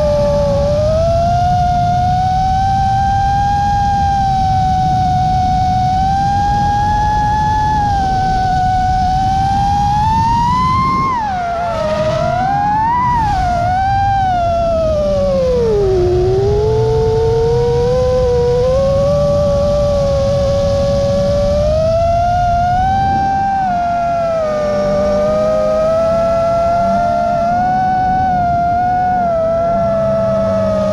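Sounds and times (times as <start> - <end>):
drone motors whining: 0.0 - 30.9
wind and prop wash rush: 0.0 - 30.9.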